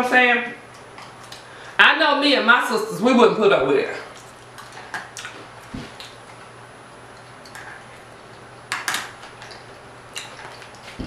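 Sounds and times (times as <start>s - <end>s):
person chewing food: 4.1s - 11.0s.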